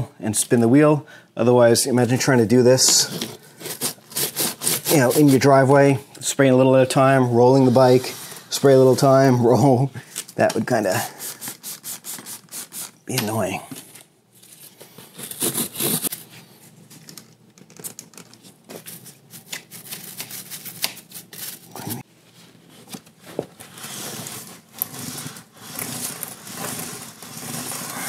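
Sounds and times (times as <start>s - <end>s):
brush scrubbing a chain: 23.8s - 28.0s.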